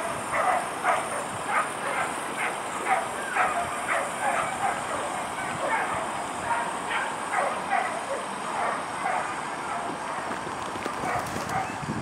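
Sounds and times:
dogs barking and yelping: 0:00.0 - 0:11.8
steady background noise: 0:00.0 - 0:12.0.

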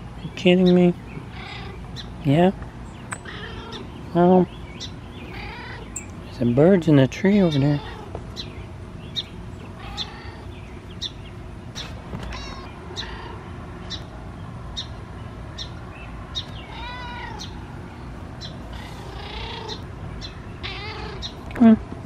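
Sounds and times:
cat meowing: 0:03.2 - 0:03.8, 0:05.3 - 0:05.9, 0:09.8 - 0:10.5, 0:12.3 - 0:13.4, 0:16.7 - 0:17.5, 0:18.7 - 0:19.8, 0:20.6 - 0:21.3.

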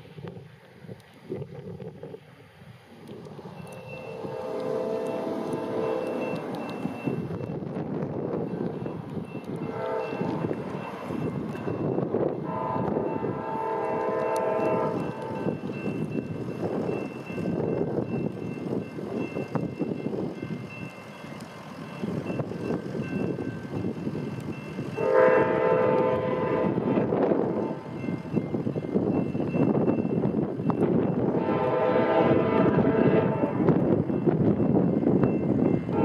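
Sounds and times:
road traffic rumble: 0:00.0 - 0:36.0
train horn chord: 0:04.1 - 0:06.4, 0:09.6 - 0:10.5, 0:12.4 - 0:15.5, 0:25.0 - 0:27.9, 0:31.3 - 0:33.8.

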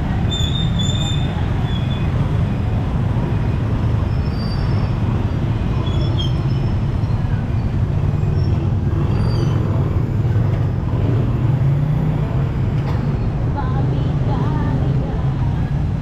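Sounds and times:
motorbike engines rumbling: 0:00.0 - 0:16.0.

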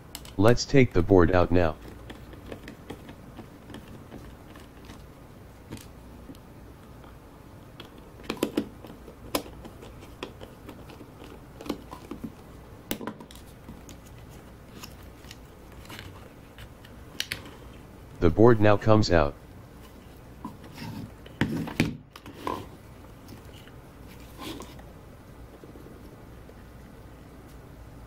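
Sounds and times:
clicks taps and scrapes on plastic: 0:01.8 - 0:05.0, 0:07.8 - 0:14.0.

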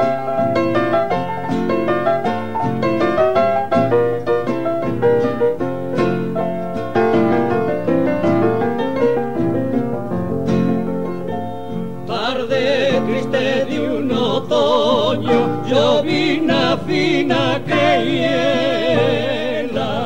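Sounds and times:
piano accompaniment: 0:00.0 - 0:20.0
men singing in harmony: 0:12.1 - 0:20.0.

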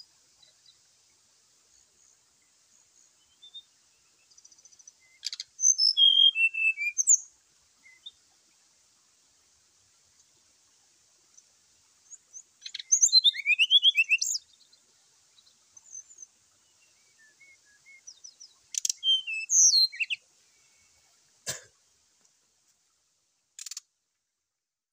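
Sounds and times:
bird singing whistled notes: 0:03.0 - 0:08.2, 0:12.1 - 0:14.8, 0:15.4 - 0:21.0.

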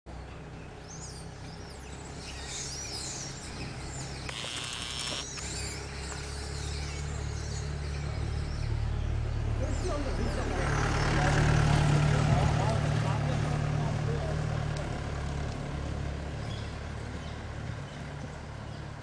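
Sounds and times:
low engine hum: 0:00.1 - 0:19.0
wild birds calling: 0:00.2 - 0:11.8
buzzing bird trill: 0:03.9 - 0:05.8.

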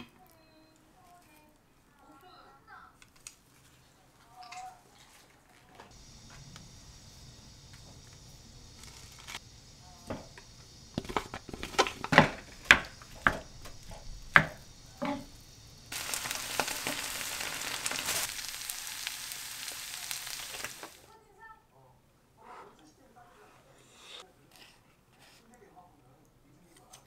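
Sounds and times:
rice sizzling in a pan: 0:05.9 - 0:21.1
spatula knocking on a pan: 0:12.1 - 0:15.2.

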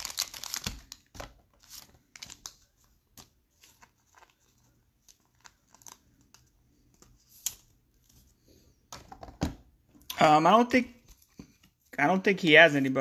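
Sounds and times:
plastic card sleeves rustling: 0:00.0 - 0:08.3.

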